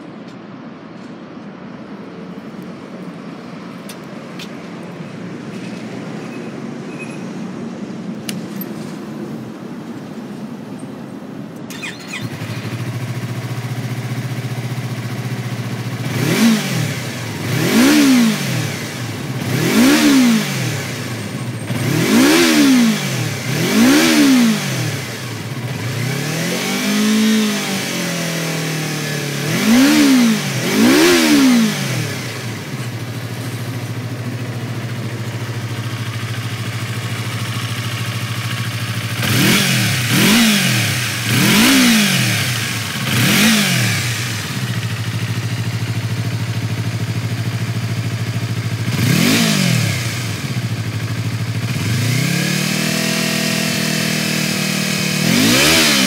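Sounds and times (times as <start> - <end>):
motorcycle engine revving and idling: 11.6 - 56.0.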